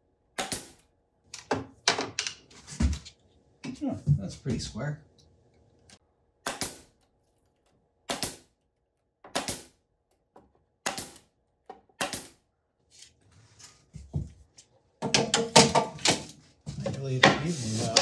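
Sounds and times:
nail gun firing: 0.4s - 0.8s, 6.4s - 7.0s, 8.0s - 8.6s, 9.3s - 9.8s, 10.8s - 11.3s, 12.0s - 12.4s.

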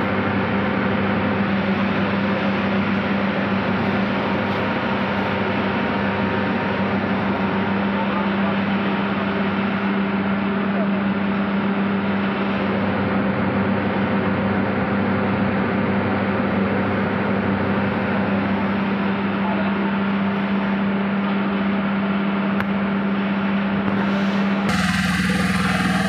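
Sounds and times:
electrical hum: 23.9s - 26.0s.

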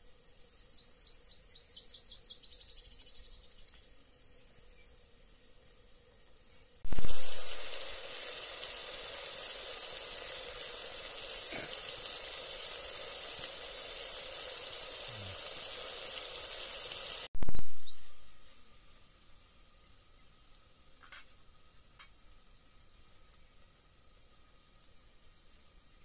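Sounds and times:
vegetables sizzling in hot oil: 6.6s - 26.0s.

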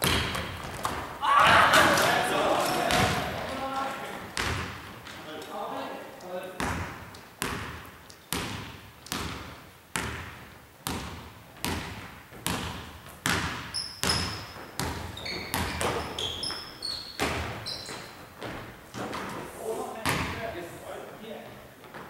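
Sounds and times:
basketball bouncing on wooden floor: 0.0s - 1.1s, 4.4s - 4.9s, 6.6s - 19.2s, 20.0s - 20.4s
sneakers squeaking on floor: 10.9s - 19.3s.

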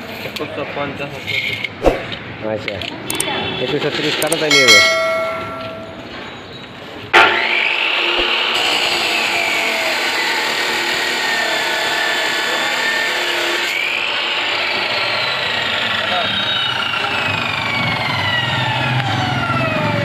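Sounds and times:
chop saw cutting steel bar: 7.2s - 17.7s.

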